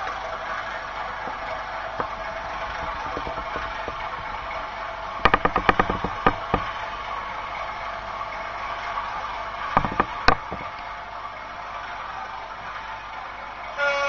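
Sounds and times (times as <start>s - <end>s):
model locomotive diesel engine drone: 0.0s - 14.0s.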